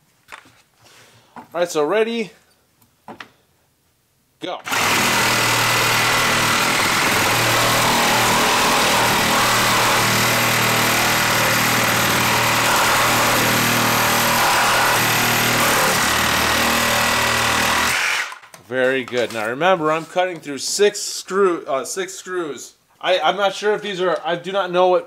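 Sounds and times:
reciprocating saw cutting wood: 4.7s - 18.4s.

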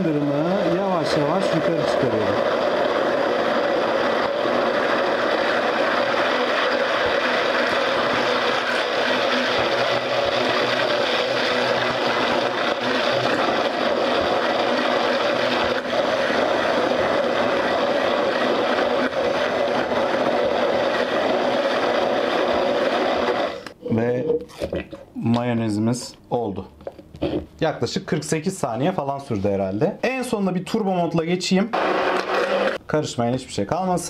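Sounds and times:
hand blender running: 0.0s - 23.8s, 31.8s - 32.8s.

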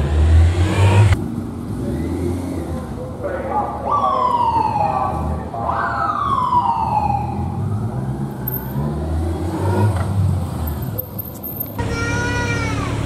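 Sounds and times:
road traffic rumble: 0.0s - 13.0s
police siren winding down: 3.9s - 8.6s.

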